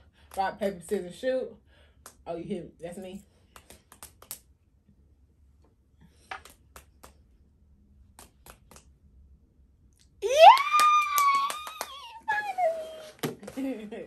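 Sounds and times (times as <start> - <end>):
fists tapping on palms: 3.5 - 4.5, 8.0 - 9.0
woman squealing: 10.2 - 13.2.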